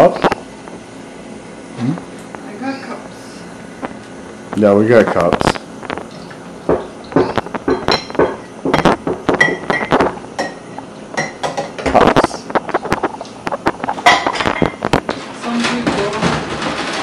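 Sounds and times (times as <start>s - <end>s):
dishes clinking in a sink: 6.7s - 12.0s, 14.0s - 14.8s.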